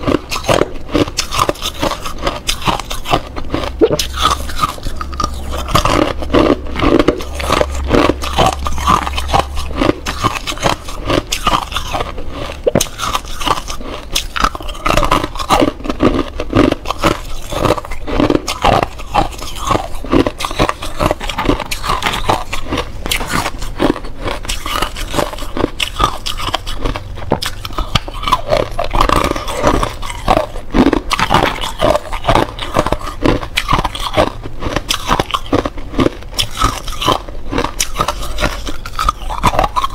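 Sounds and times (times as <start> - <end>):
teeth crunching ice: 0.0 - 39.9.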